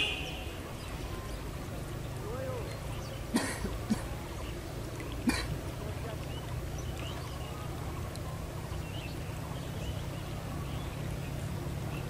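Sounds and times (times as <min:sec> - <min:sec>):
faint bird chirps: 0:06.1 - 0:12.0.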